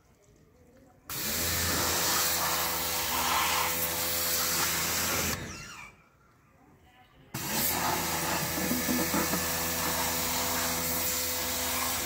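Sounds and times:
pressure washer motor humming: 0:01.1 - 0:05.4, 0:07.4 - 0:12.0
high-pressure water jet hissing: 0:01.1 - 0:05.6, 0:07.4 - 0:12.0.

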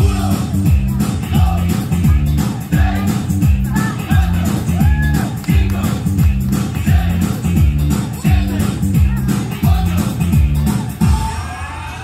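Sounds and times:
dance music over loudspeakers: 0:00.0 - 0:12.0.

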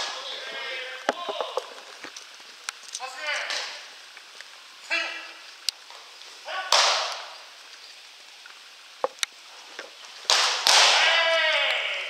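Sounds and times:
baseball popping into catcher's mitt: 0:06.7 - 0:07.3, 0:10.3 - 0:11.0.

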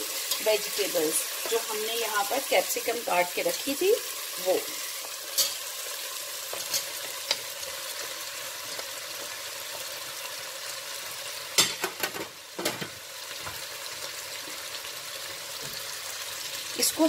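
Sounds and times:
food sizzling in a pot: 0:00.0 - 0:17.0
clinks against a pot: 0:11.6 - 0:12.9.

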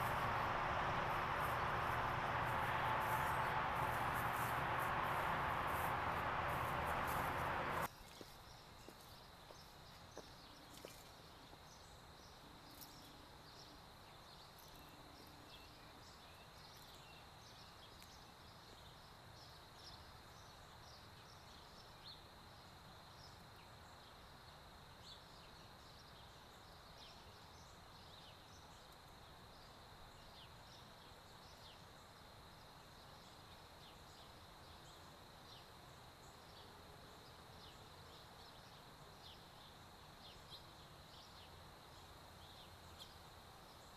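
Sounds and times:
high insect drone: 0:00.0 - 0:07.9.

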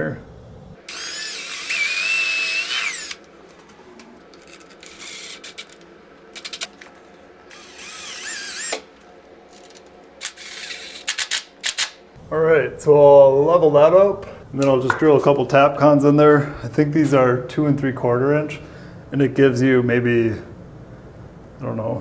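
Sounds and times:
cordless drill motor whine: 0:00.8 - 0:03.3, 0:04.4 - 0:05.8, 0:07.5 - 0:08.9, 0:09.6 - 0:11.2.

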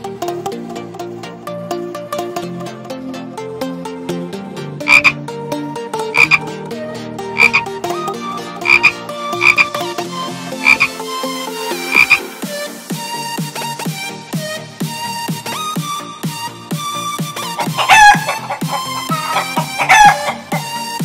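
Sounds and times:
light background music: 0:00.0 - 0:21.0
frog double croaks: 0:04.8 - 0:05.2, 0:06.1 - 0:06.4, 0:07.4 - 0:07.7, 0:08.6 - 0:09.8, 0:10.6 - 0:11.0, 0:11.9 - 0:12.3, 0:17.6 - 0:20.6.

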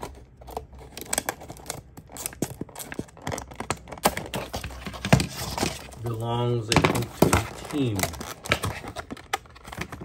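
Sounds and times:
scissors cutting plastic: 0:00.0 - 0:04.8
plastic packaging crinkling: 0:00.0 - 0:10.0.

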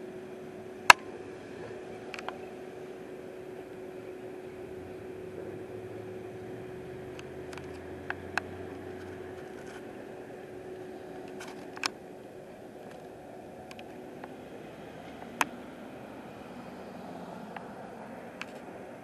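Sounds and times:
low engine-like drone: 0:00.0 - 0:19.0
steady mechanical hum: 0:00.0 - 0:19.0
sharp clicks: 0:11.2 - 0:12.0.

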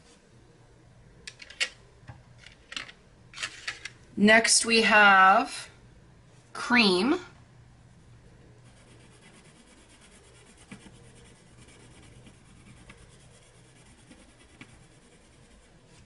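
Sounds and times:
pencil scratching on paper: 0:08.6 - 0:16.0.

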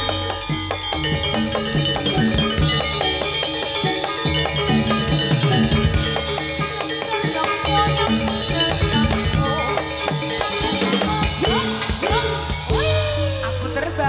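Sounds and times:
drums beating: 0:00.0 - 0:14.0
ringing metallophone notes: 0:00.0 - 0:14.0.

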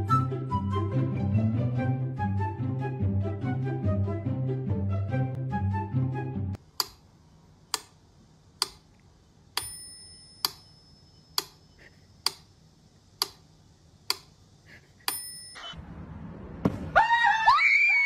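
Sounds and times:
metronome bell ringing: 0:09.6 - 0:11.4, 0:15.1 - 0:15.8.

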